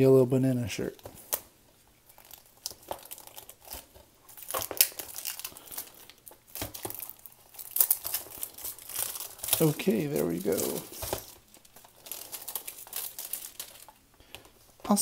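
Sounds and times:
plastic wrap tearing and crinkling: 0.9 - 14.7.

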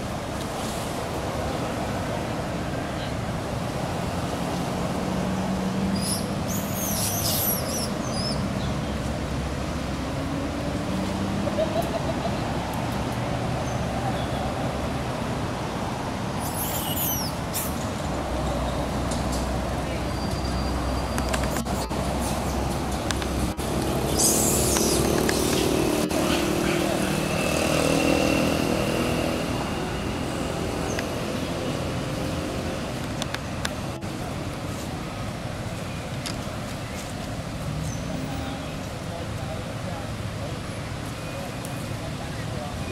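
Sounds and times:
distant traffic rumble and hiss: 0.0 - 42.9
outdoor background noise: 0.0 - 42.9
brief high squeaks: 16.4 - 17.7, 24.1 - 25.6
vehicle engine passing: 18.1 - 33.1.

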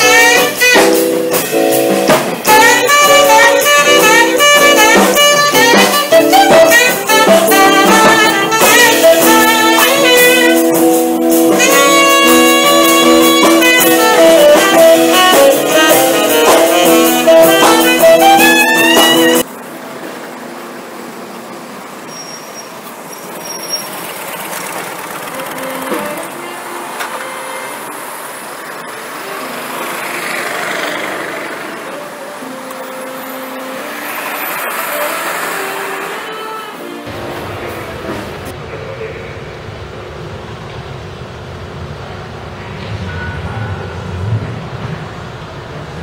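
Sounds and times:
guitar: 0.0 - 19.5
saxophone melody: 0.0 - 19.5, 23.2 - 37.4
street traffic noise: 0.0 - 46.0.

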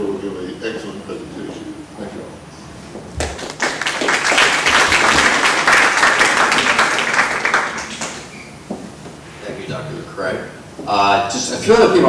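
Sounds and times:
audience applauding: 3.2 - 8.3.

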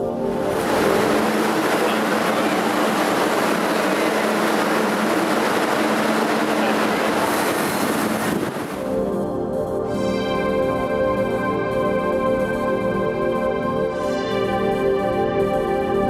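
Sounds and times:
subway train wheel and rail rush: 0.0 - 9.0.

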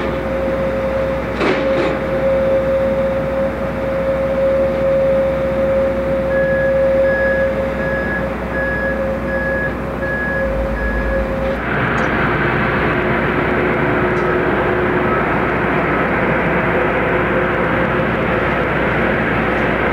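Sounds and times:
vehicle warning beeper: 0.3 - 11.6.

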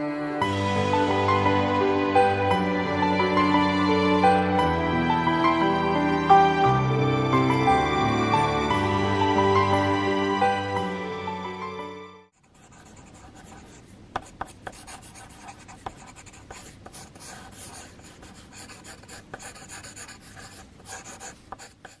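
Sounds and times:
background music: 0.0 - 12.4
pencil scratching on paper: 12.4 - 22.0.

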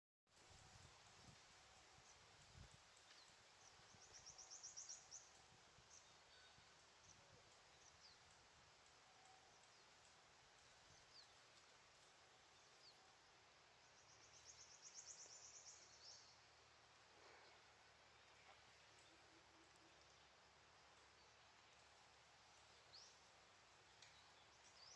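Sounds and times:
faint high bird chirps: 3.1 - 11.5.

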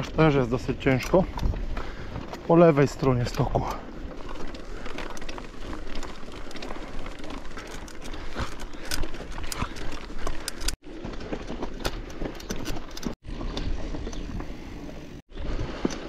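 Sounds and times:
wind rumble on microphone: 0.0 - 2.3
bike clicks and rattles: 0.0 - 16.0
bike tyres crunching over gravel: 0.0 - 16.0.

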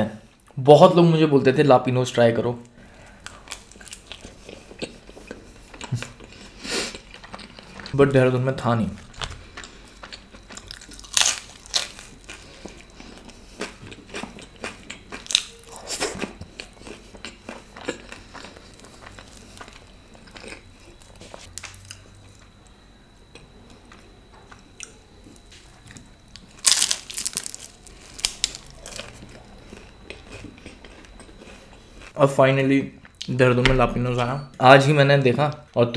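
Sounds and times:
chewing crunchy food: 2.6 - 8.0, 9.0 - 22.6, 23.2 - 32.2.

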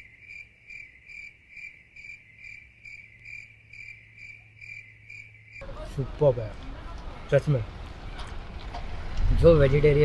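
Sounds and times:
cricket chirping: 0.0 - 5.7.

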